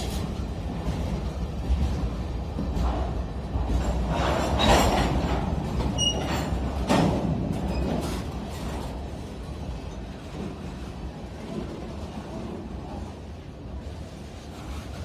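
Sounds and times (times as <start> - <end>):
train cars clattering: 0.0 - 15.0
train wheels rumbling on rail: 0.0 - 15.0
wheel squeal: 5.9 - 6.5.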